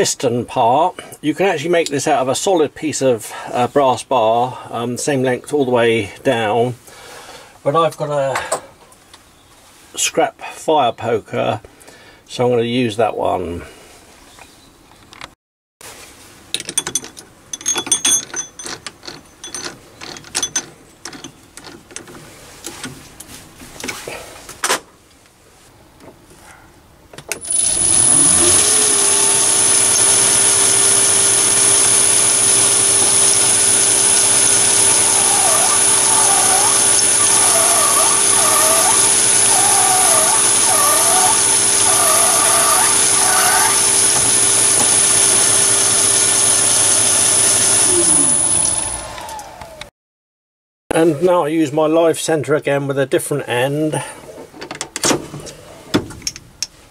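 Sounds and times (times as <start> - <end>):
lathe motor whining: 27.4 - 49.9.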